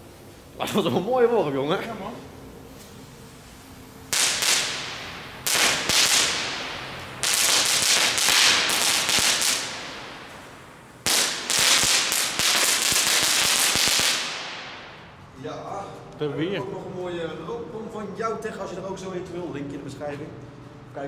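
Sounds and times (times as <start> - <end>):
ground firework sputtering: 4.0 - 15.0.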